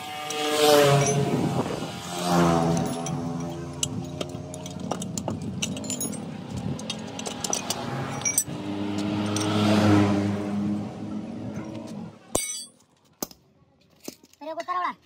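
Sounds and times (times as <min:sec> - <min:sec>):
vehicle engine driving past: 0:00.0 - 0:12.2
metal clatter: 0:02.7 - 0:09.6
spanners clinking on metal: 0:02.7 - 0:09.7, 0:11.6 - 0:12.9.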